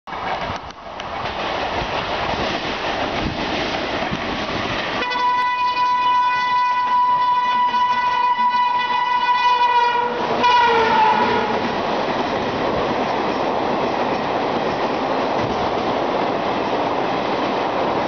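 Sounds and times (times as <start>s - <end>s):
rushing train noise: 0.1s - 18.0s
train air horn blast: 5.0s - 11.7s.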